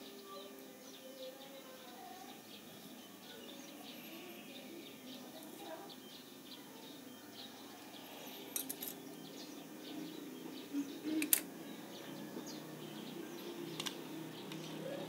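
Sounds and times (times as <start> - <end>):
birds chirping faintly: 0.0 - 15.0
small metal parts clicking: 8.5 - 9.0, 11.2 - 11.5, 13.7 - 14.7.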